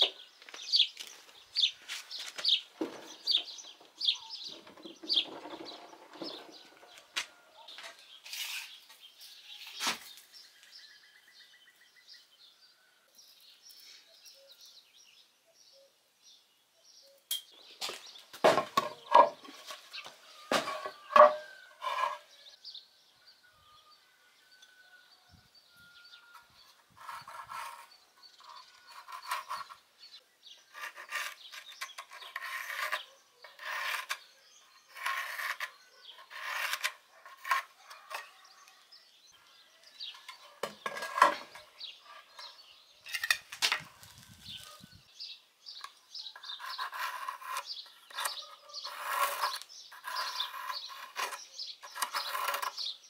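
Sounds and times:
pencil scratching on wood: 0:30.7 - 0:38.6, 0:46.4 - 0:52.9.

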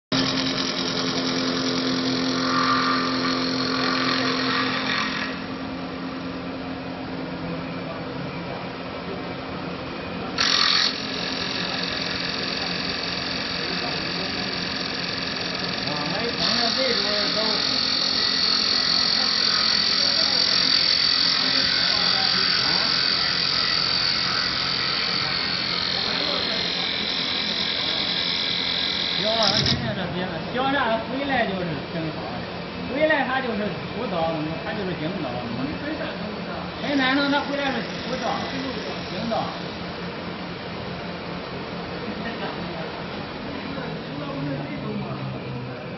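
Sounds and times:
cutter shaving spinning wood: 0:00.1 - 0:05.8, 0:10.4 - 0:30.0, 0:34.6 - 0:41.8
lathe motor humming: 0:00.1 - 0:08.0, 0:08.6 - 0:45.9.

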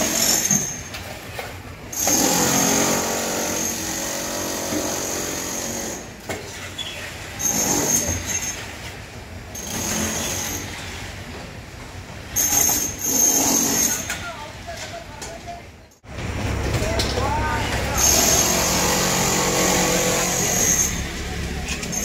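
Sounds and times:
concrete mixer grinding hum: 0:16.0 - 0:22.0.

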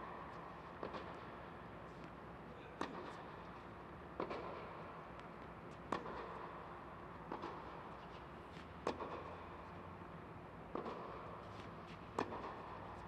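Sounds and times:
tennis ball struck by rackets: 0:10.7 - 0:11.2, 0:12.1 - 0:12.7.

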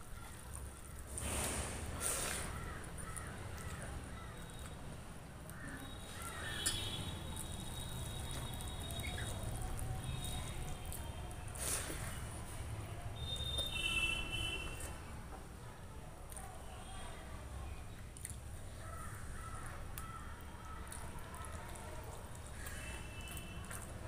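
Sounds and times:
chewing: 0:00.2 - 0:04.8, 0:05.5 - 0:12.2, 0:18.0 - 0:24.0.

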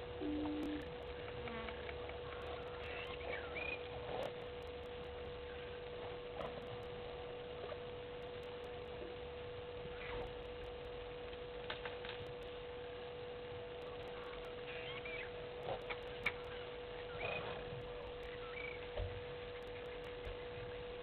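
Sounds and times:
steady hum: 0:00.0 - 0:21.0
short low tone: 0:00.2 - 0:00.9.

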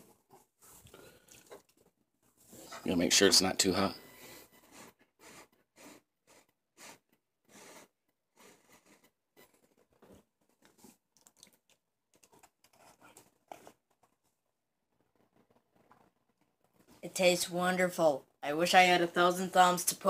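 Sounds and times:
chewing food: 0:00.7 - 0:02.0, 0:09.5 - 0:14.2.

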